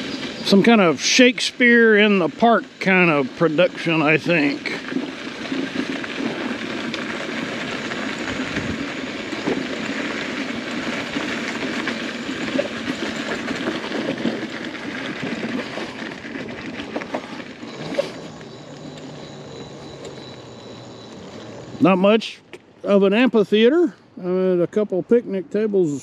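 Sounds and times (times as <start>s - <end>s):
footsteps on gravel: 2.8s - 21.9s.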